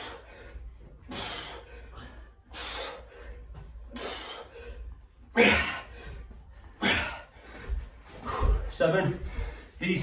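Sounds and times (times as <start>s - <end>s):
man breathing hard: 0.0s - 9.9s.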